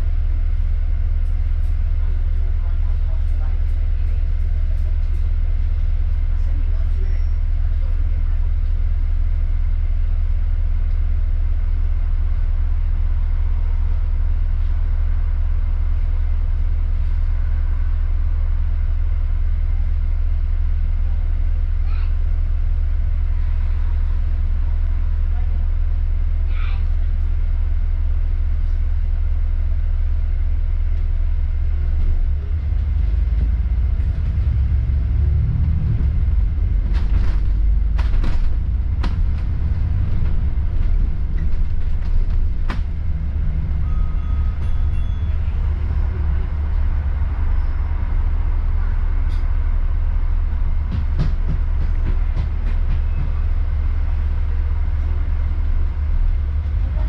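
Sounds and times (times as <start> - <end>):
bus engine and road noise: 0.0 - 57.0.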